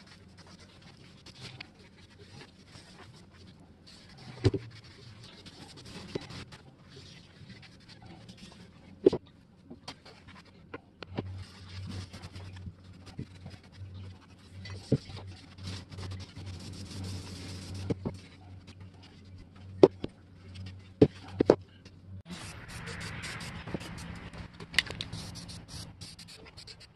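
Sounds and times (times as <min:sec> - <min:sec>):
low steady hum: 0:00.0 - 0:26.9
cloth rubbing on metal: 0:11.2 - 0:18.6.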